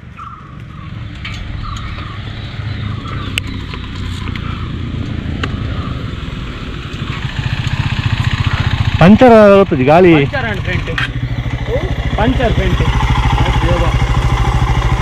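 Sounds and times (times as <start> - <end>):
motorcycle engine idling: 0.2 - 15.0.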